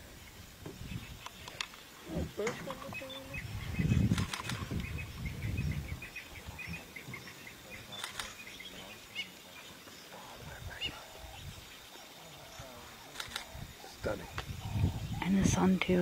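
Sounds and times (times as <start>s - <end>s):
bird chirping: 0.2s - 16.0s
sharp clicks: 4.0s - 4.9s, 7.9s - 8.5s, 13.1s - 13.5s.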